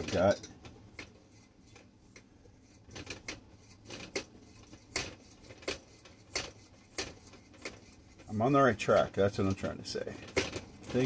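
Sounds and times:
hand pump clicking strokes: 0.9 - 8.4.

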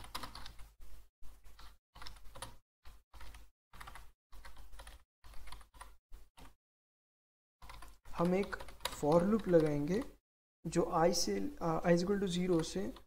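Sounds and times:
computer keyboard typing: 0.0 - 0.7, 1.5 - 6.6, 7.6 - 10.2, 12.4 - 13.0.

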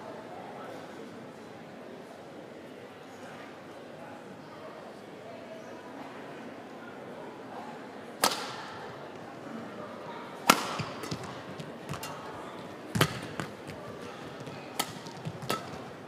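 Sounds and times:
rackets striking shuttlecock: 8.2 - 8.7, 10.4 - 16.0.

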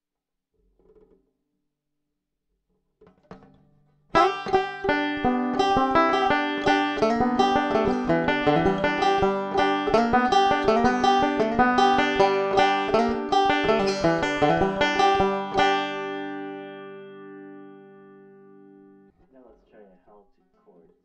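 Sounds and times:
banjo plucked notes: 3.0 - 19.3.

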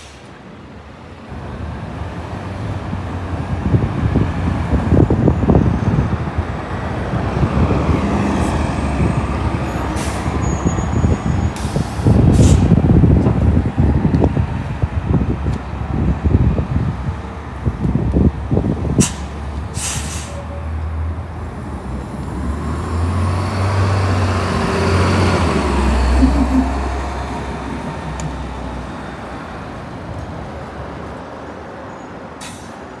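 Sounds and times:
air brake hiss: 0.0 - 0.3, 11.5 - 12.7, 19.0 - 20.5, 32.4 - 32.8
bus engine drone passing: 0.0 - 33.0.

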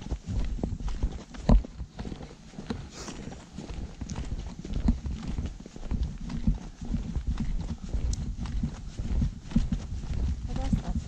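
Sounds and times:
footsteps on a dirt trail: 0.0 - 11.0.

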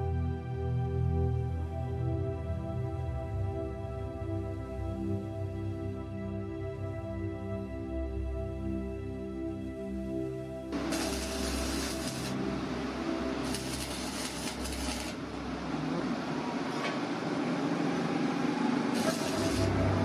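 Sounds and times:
welding arc crackling and sizzling: 10.8 - 12.5, 13.2 - 15.6, 18.9 - 20.0.

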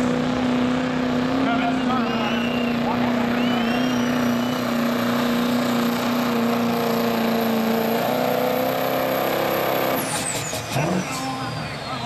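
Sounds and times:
diesel engine at full throttle: 0.0 - 12.0.

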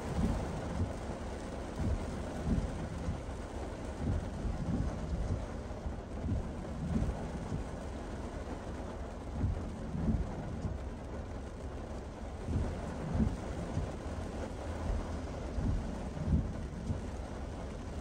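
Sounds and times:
heavy rain pelting a car: 0.0 - 18.0
low thuds: 1.8 - 3.3, 3.9 - 7.8, 9.4 - 10.9, 12.3 - 18.0.

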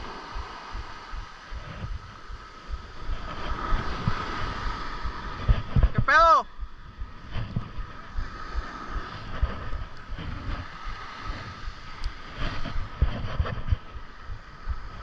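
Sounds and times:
small surf breaking on sand: 0.0 - 15.0
wind buffeting microphone: 0.0 - 15.0.

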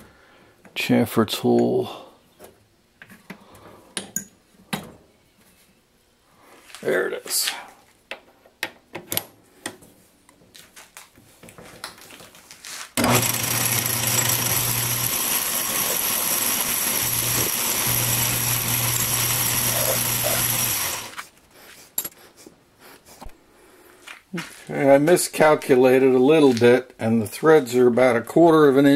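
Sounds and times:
metal lathe running: 13.0 - 21.2.

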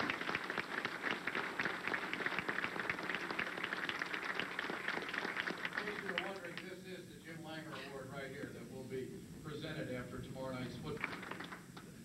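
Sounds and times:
audience applauding: 0.0 - 6.8, 10.9 - 12.0.

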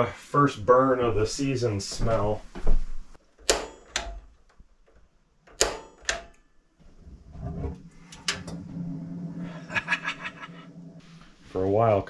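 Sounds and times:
low steady hum: 6.8 - 12.0.

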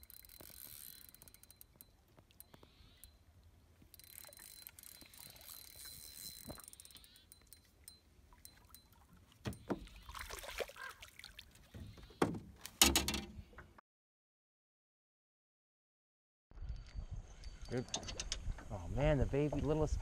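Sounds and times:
fishing reel whirring: 0.0 - 3.2, 3.9 - 8.9.

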